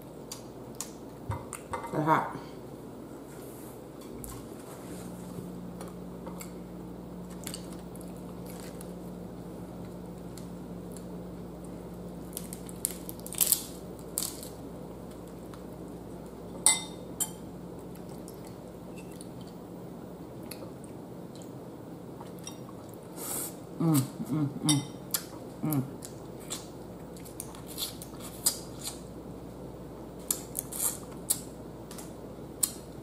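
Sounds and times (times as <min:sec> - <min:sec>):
low steady hum: 0:00.0 - 0:33.0
crab shell cracking by hand: 0:12.3 - 0:14.6.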